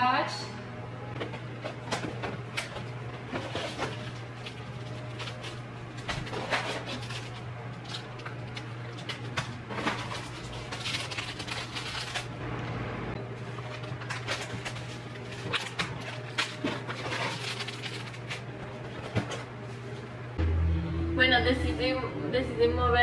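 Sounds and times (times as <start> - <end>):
steady low hum: 0.0 - 23.0
plastic packets crinkling: 2.7 - 12.4, 13.7 - 18.5.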